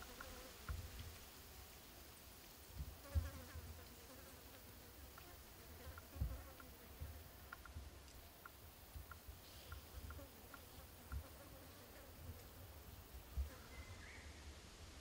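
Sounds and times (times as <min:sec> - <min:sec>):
flying insect buzzing: 0:00.0 - 0:00.9, 0:02.9 - 0:07.8, 0:08.6 - 0:13.8
low thumps: 0:06.1 - 0:08.0.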